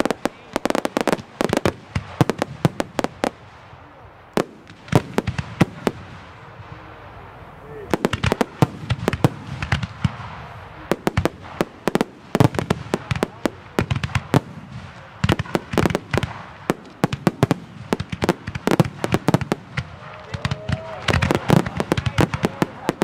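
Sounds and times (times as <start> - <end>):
firework shells bursting: 7.9 - 23.0.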